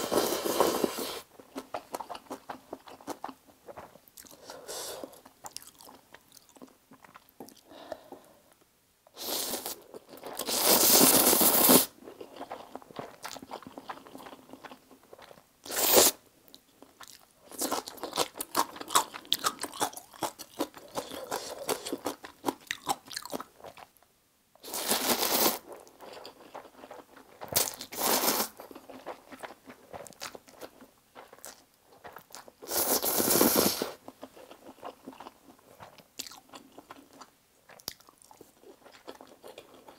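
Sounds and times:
noodle slurping: 0:10.4 - 0:11.9, 0:15.7 - 0:16.2.

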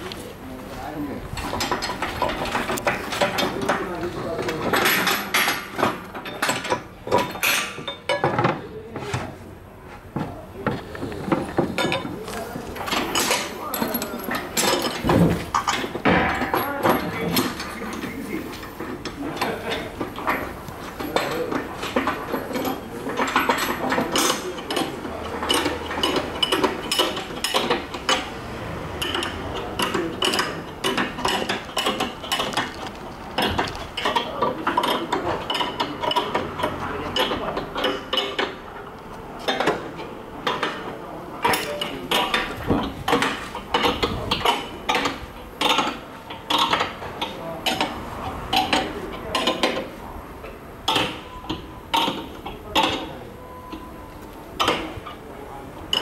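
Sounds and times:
metal clinking and knocking: 0:01.4 - 0:08.6, 0:10.7 - 0:28.3.

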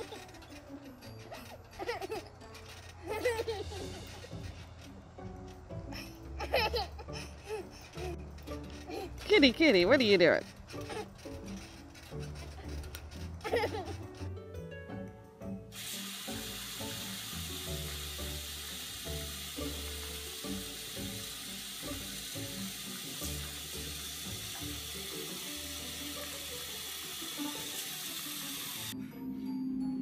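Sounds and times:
background music: 0:00.0 - 0:30.0
faucet water splashing into basin: 0:15.8 - 0:28.9.

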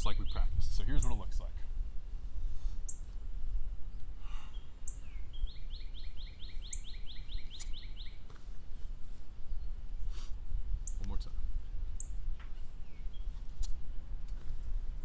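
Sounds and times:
songbird trilling: 0:00.0 - 0:01.4, 0:02.9 - 0:03.1, 0:04.4 - 0:08.3, 0:10.8 - 0:11.2, 0:12.0 - 0:12.2
wind rumble on microphone: 0:00.0 - 0:15.0
short high bird chirps: 0:04.5 - 0:08.2, 0:10.8 - 0:11.1.

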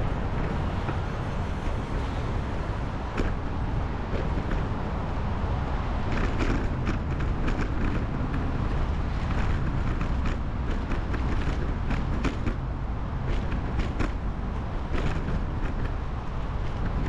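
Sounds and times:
wind and road rumble: 0:00.0 - 0:17.0
bicycle clicks and creaks: 0:05.5 - 0:17.0.

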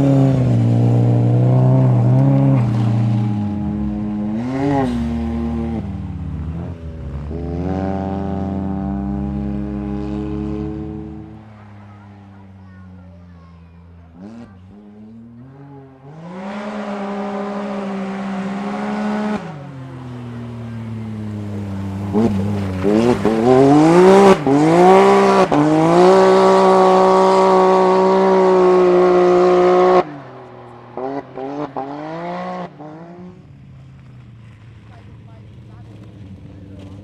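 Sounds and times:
buggy engine at full throttle: 0:00.0 - 0:37.0
rally car revving: 0:00.0 - 0:37.0.

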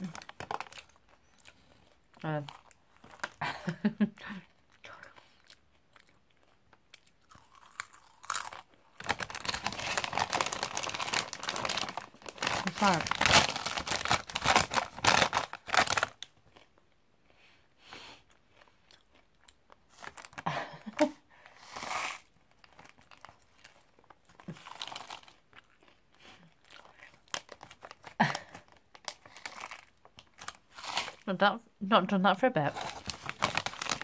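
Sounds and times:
crisp packet rustling: 0:00.0 - 0:03.4, 0:07.4 - 0:16.4, 0:20.0 - 0:21.1, 0:21.7 - 0:25.6, 0:26.7 - 0:31.3, 0:32.7 - 0:34.0
crisps crunching: 0:00.0 - 0:03.4, 0:05.3 - 0:16.8, 0:18.5 - 0:20.9, 0:21.7 - 0:31.3, 0:32.7 - 0:34.0.

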